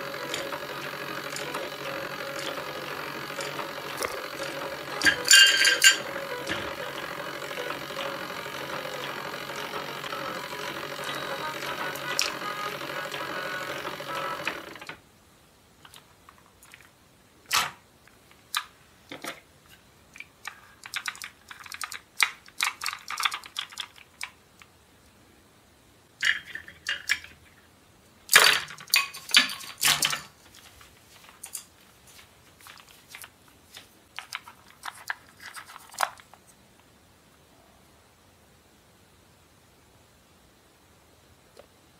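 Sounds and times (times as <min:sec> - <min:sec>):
plastic toy pieces clicking: 0:20.2 - 0:24.7, 0:26.2 - 0:27.5, 0:34.2 - 0:36.4.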